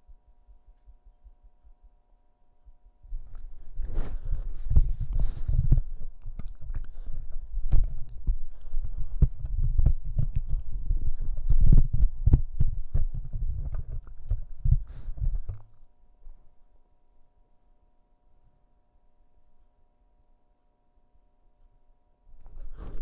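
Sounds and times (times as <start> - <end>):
puppy chewing headphones: 3.1 - 16.5, 22.4 - 23.0.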